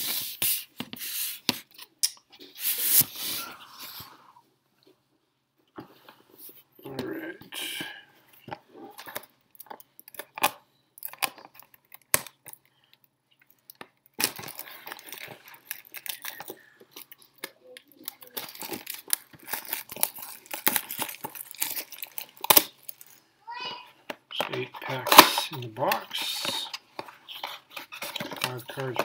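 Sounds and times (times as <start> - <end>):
wrapping crinkling and rustling: 8.4 - 23.3, 24.3 - 29.0.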